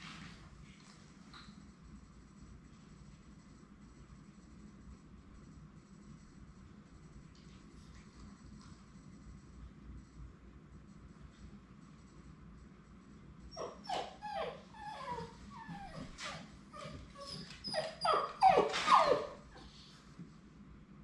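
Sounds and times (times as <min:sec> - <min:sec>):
puppy whimpering: 0:13.5 - 0:19.8.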